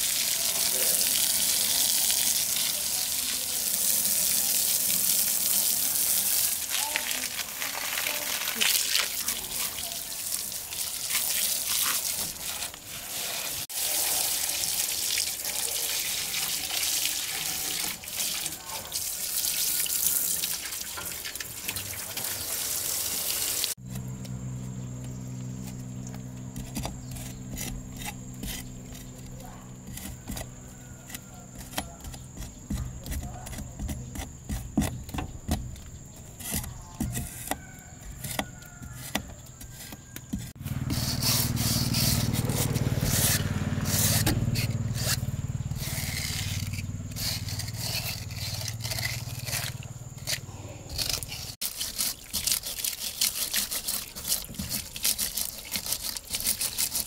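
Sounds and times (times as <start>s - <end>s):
hose water spraying: 0.0s - 23.8s, 40.5s - 50.0s
metal bar scraping mud: 11.0s - 14.2s, 25.6s - 57.0s.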